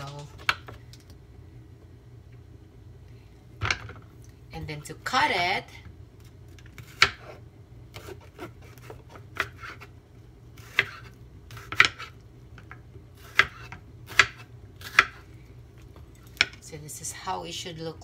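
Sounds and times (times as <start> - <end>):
knife chopping on wooden board: 6.8 - 9.9, 10.6 - 12.1, 13.2 - 15.2.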